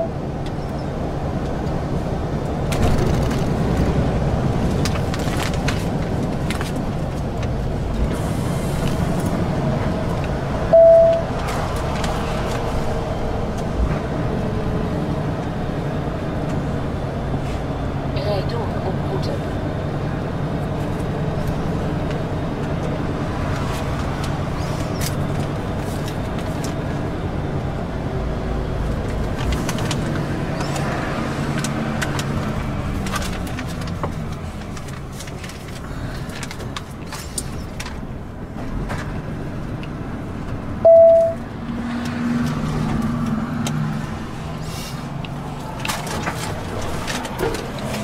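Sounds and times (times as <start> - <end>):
loud short beep: 10.7 - 11.2, 40.8 - 41.4.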